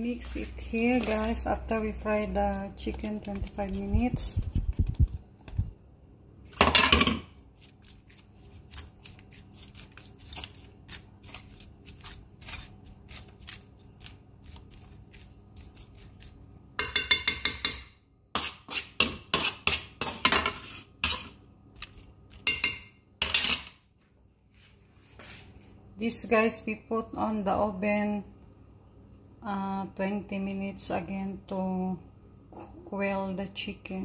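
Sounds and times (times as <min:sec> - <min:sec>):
metal spoon clinking and scraping bowl: 0:16.8 - 0:17.8, 0:22.3 - 0:23.7.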